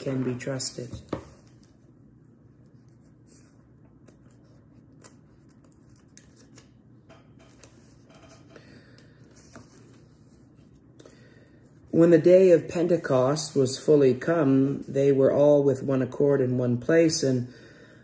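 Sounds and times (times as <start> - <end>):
book pages turning: 0.1 - 2.0, 2.6 - 11.0.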